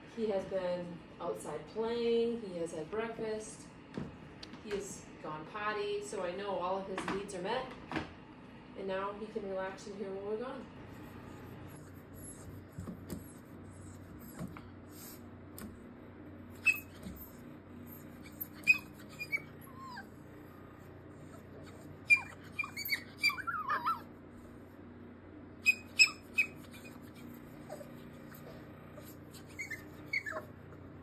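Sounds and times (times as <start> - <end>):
puppy whining and yipping: 11.4 - 15.2, 16.5 - 20.5, 21.2 - 24.1, 25.6 - 31.0.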